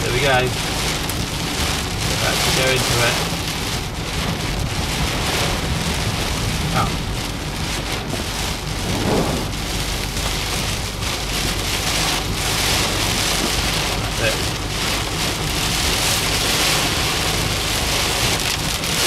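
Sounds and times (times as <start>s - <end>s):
heavy rain drumming on a car: 0.0s - 19.0s
low rumble: 4.2s - 13.3s.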